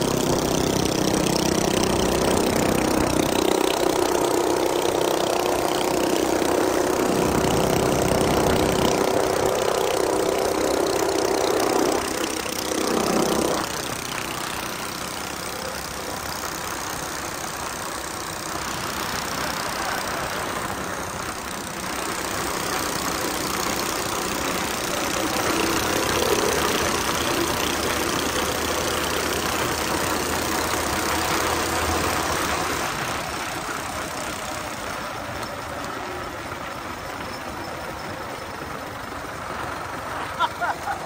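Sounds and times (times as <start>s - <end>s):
mini bike engine running: 0.0s - 41.0s.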